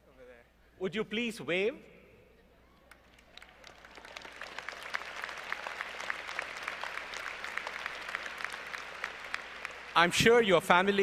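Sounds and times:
audience applauding: 2.9s - 10.2s.

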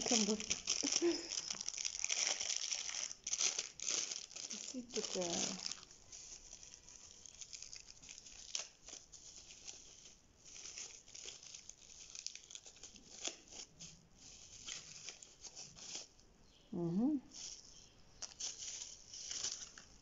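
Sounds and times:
plastic tearing: 0.0s - 13.9s, 18.2s - 20.0s
plastic pouch crinkling: 0.0s - 16.1s, 17.3s - 20.0s.

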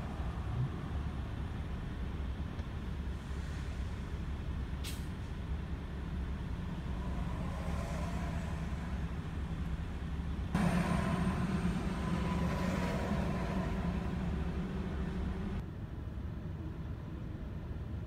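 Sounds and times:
idling engines in traffic: 0.0s - 18.0s.

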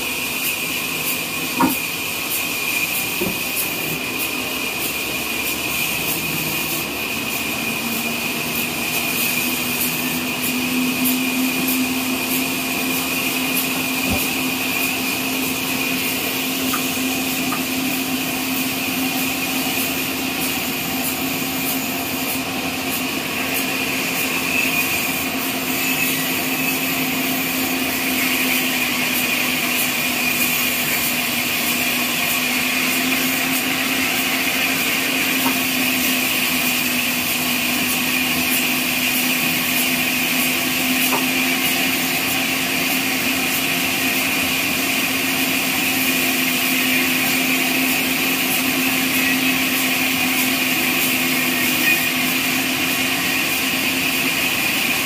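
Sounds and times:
band sawmill running: 0.0s - 55.0s
high whine: 2.4s - 28.8s.

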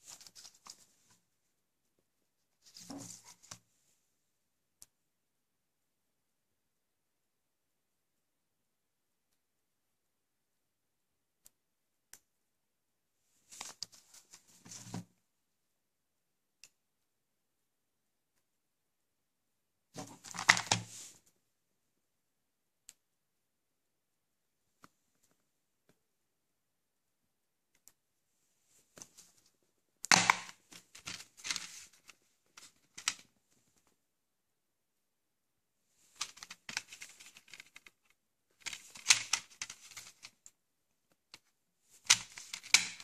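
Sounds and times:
plastic case rustling and scraping: 2.6s - 3.6s, 30.2s - 33.3s, 36.0s - 37.9s
plastic case clicking and rustling: 36.1s - 38.0s, 38.6s - 40.4s.

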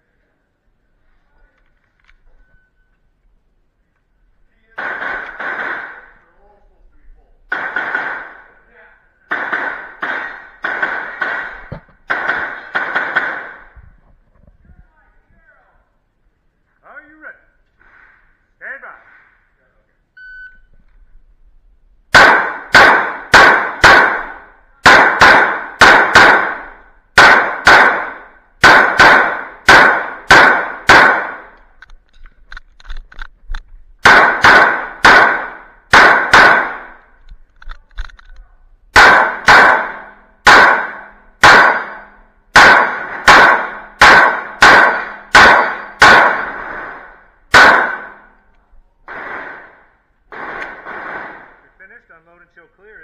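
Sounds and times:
pistol shots echoing: 4.8s - 6.2s, 7.5s - 8.6s, 9.3s - 13.7s, 22.1s - 31.6s, 34.0s - 37.0s, 38.9s - 48.4s, 49.1s - 51.6s.

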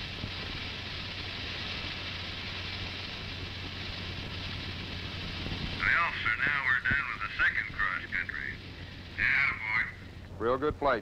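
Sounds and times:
low hum: 0.0s - 11.0s
steady hiss: 0.0s - 11.0s.

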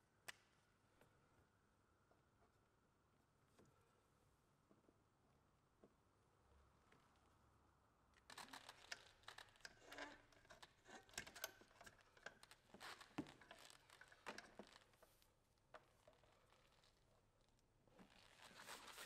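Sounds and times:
clicking and rustling of cord: 8.2s - 19.0s.

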